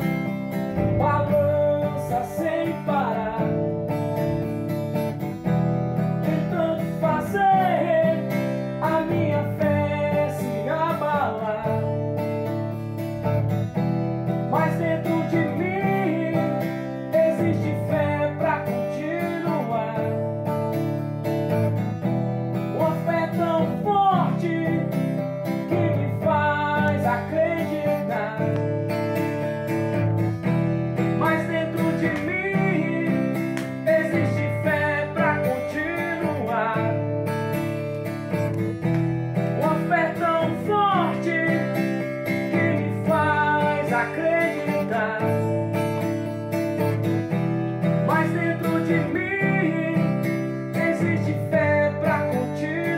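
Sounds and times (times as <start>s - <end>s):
man singing: 0.0s - 13.2s, 14.3s - 21.0s, 22.5s - 38.6s, 39.4s - 47.2s, 47.8s - 52.9s
acoustic guitar strumming: 0.0s - 52.9s.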